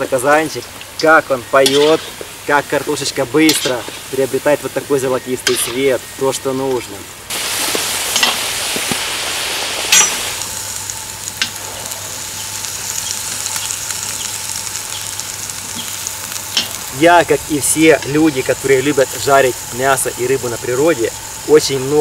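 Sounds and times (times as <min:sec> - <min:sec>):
fish sizzling on grill: 0:00.0 - 0:22.0
potatoes deep-frying in fat: 0:00.0 - 0:22.0
spatula clicking on grill grate: 0:13.0 - 0:16.9.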